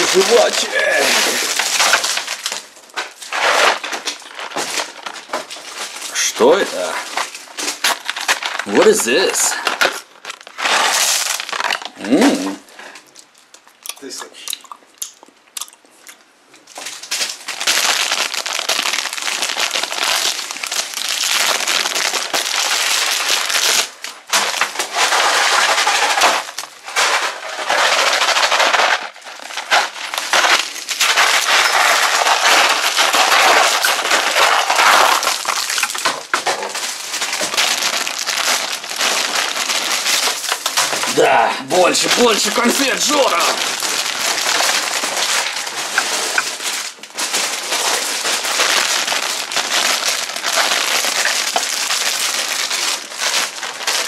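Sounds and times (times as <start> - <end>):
candy wrappers crackling: 0.0 - 54.0.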